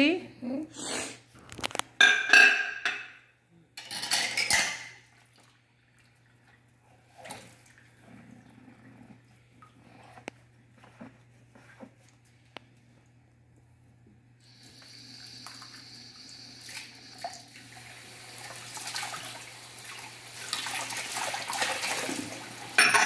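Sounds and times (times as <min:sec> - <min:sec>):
dishes clattering in a sink: 0:02.0 - 0:05.1, 0:21.5 - 0:23.0.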